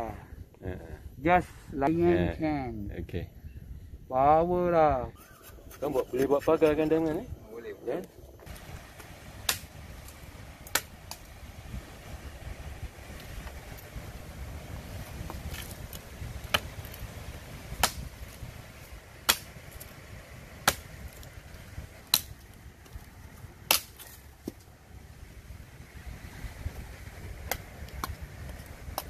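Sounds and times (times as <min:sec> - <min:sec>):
cleaver chopping wood: 0:08.5 - 0:11.3, 0:15.1 - 0:17.0, 0:17.8 - 0:18.3, 0:19.2 - 0:19.9, 0:20.6 - 0:21.2, 0:22.0 - 0:23.0, 0:23.7 - 0:24.6, 0:27.4 - 0:28.2.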